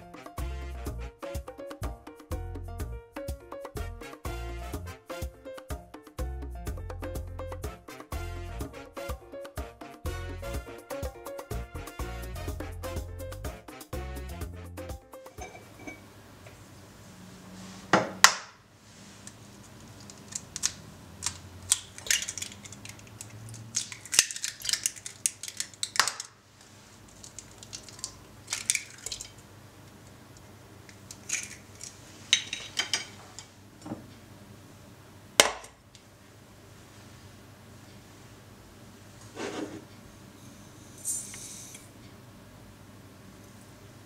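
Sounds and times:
glass bowl set down: 15.3 - 16.1
eggshells cracking: 19.9 - 26.4, 27.0 - 29.4, 30.9 - 32.6.

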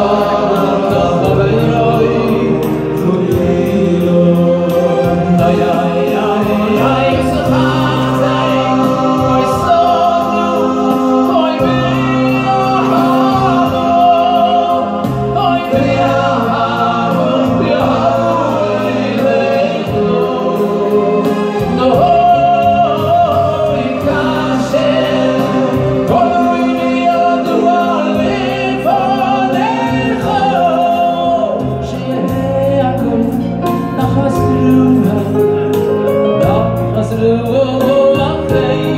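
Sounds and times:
electronic keyboard chords: 0.0 - 38.9
male vocal group singing: 0.0 - 38.9.

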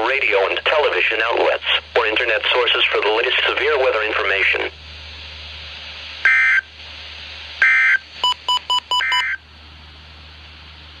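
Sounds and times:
low hum and hiss: 0.0 - 11.0
short beeps: 7.6 - 9.4.

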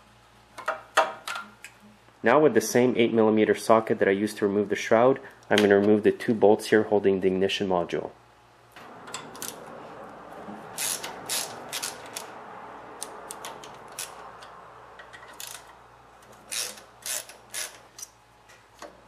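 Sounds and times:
socket ratchet clicking: 10.8 - 12.4, 13.0 - 18.2.

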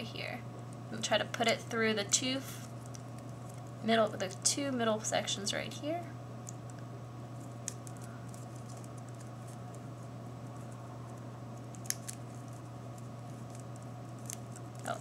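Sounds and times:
steady low hum: 0.0 - 15.0
paper crinkling: 7.4 - 15.0
sharp little paper clicks: 11.6 - 15.0.

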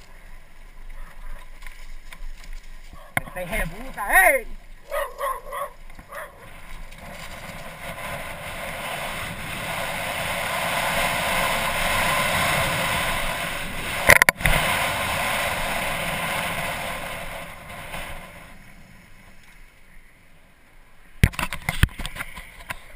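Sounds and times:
wind rushing over microphone: 0.0 - 19.3.

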